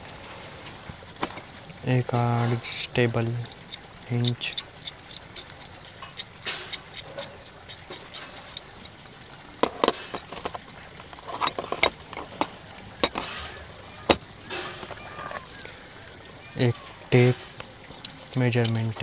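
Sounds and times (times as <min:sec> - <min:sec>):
metal tools clicking on plastic case: 0:01.2 - 0:01.7, 0:02.6 - 0:13.4.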